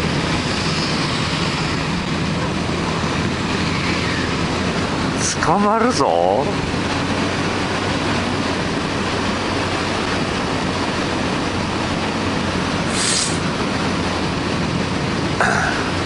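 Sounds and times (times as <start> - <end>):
motorcycle engine cruising: 0.0 - 16.0
wind rush on microphone: 0.0 - 16.0
brief higher hiss: 12.9 - 13.4.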